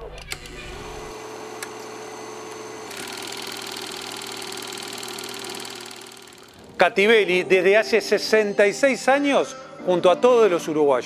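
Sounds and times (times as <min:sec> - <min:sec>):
steady hum: 0:00.4 - 0:06.8
click: 0:01.6 - 0:01.9.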